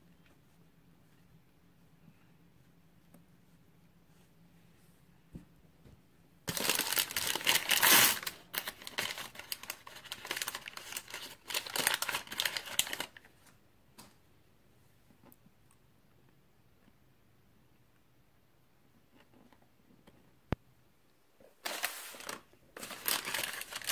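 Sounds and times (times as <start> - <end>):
foil tearing: 6.5 - 13.1, 21.6 - 23.9
foil packets crinkling: 6.5 - 13.3, 21.6 - 23.9.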